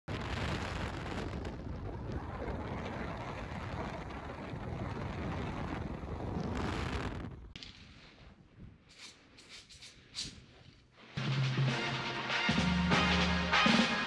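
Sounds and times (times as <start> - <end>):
car road and wind noise: 0.1 - 7.6
heavy low rumble: 0.1 - 7.6.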